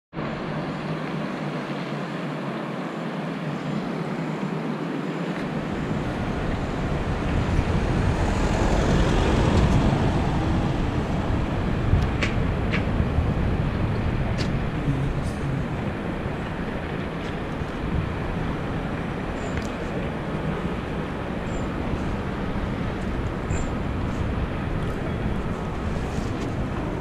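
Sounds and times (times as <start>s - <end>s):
vehicle travel and wind rushing: 0.1s - 27.0s
deep rumble: 5.4s - 27.0s.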